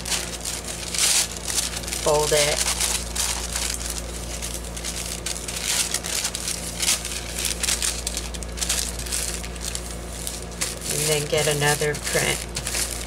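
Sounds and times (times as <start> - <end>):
waxed paper crinkling: 0.0 - 13.0.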